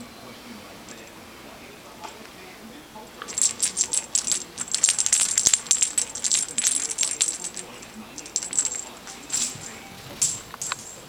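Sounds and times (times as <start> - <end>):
cat toy rattling: 3.2 - 11.0.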